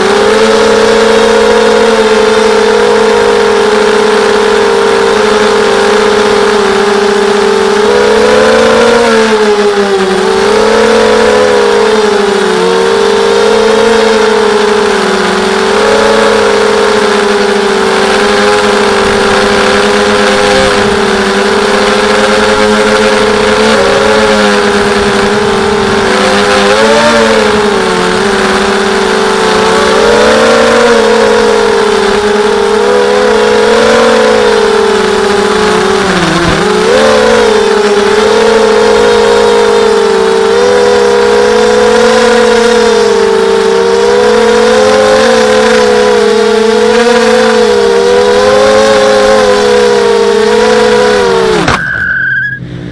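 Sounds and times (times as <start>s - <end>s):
quadcopter motors whining: 0.0s - 52.9s.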